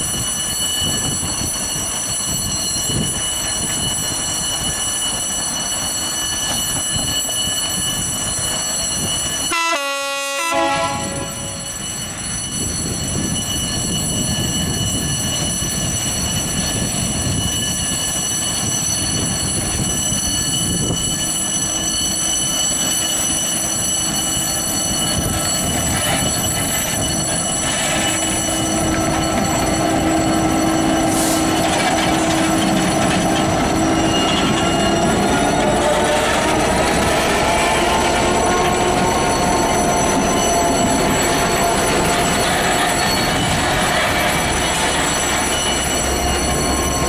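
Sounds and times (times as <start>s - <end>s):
wheels squealing: 17.6s - 47.0s
locomotive engine rumble: 24.0s - 47.0s.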